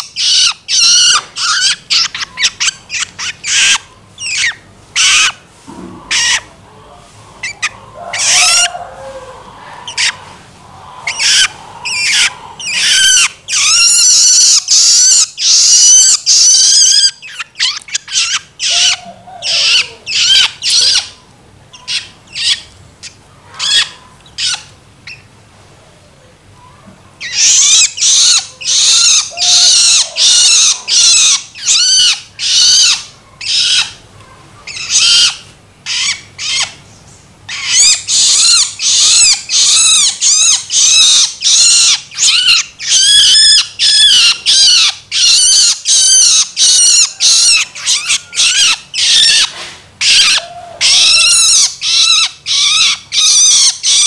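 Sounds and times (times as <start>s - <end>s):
bird begging calls: 7.4s - 21.2s, 27.2s - 34.0s, 37.5s - 54.0s.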